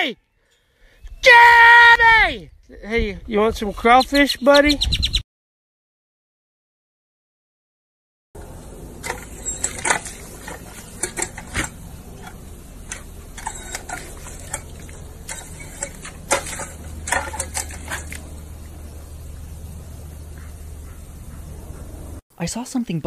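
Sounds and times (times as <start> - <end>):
water splashing: 9.0 - 21.1
dog lapping water: 9.1 - 18.4.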